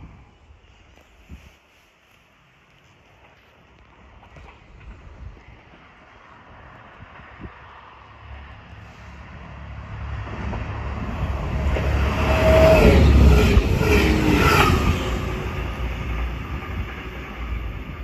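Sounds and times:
diesel train passing: 2.3s - 18.0s.

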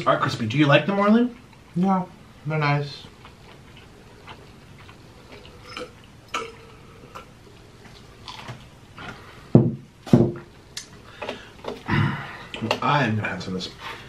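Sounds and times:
chewing and crunching: 3.0s - 9.3s.

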